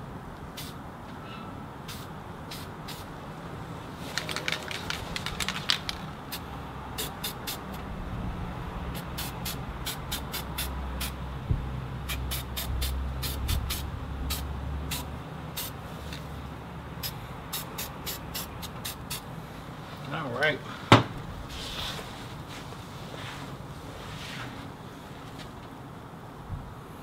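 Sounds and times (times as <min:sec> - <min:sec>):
aerosol spray hissing: 0:01.9 - 0:03.1, 0:07.0 - 0:07.7, 0:09.0 - 0:11.2, 0:12.1 - 0:15.8, 0:17.0 - 0:19.3.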